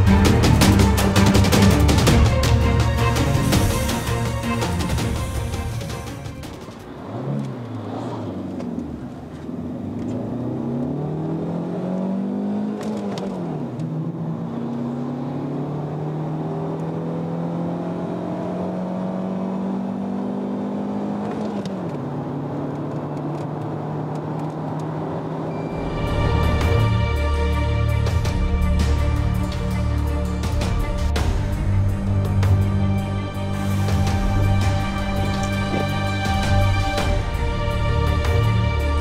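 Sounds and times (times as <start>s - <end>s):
car engine accelerating hard: 6.6s - 26.9s.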